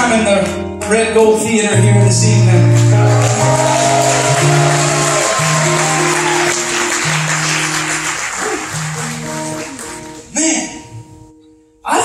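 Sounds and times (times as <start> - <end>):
live band playing chords: 1.2 - 11.5
audience applause: 2.8 - 10.4.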